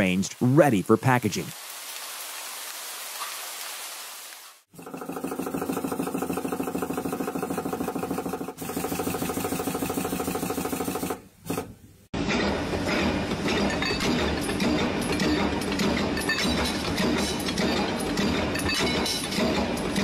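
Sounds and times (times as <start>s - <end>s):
clinking machine: 4.8s - 20.0s.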